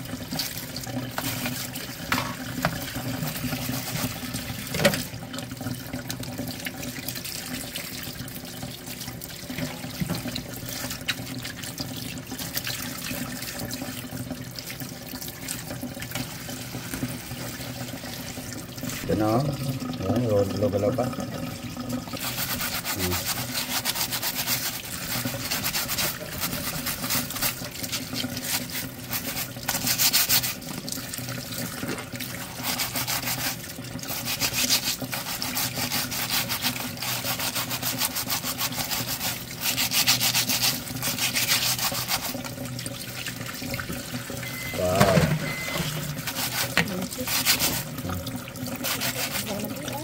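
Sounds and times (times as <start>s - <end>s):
brush scrubbing crab shells: 0.3s - 4.9s, 22.1s - 31.0s, 32.0s - 42.6s, 45.2s - 50.0s
tap water splashing: 0.3s - 19.0s, 19.8s - 50.0s.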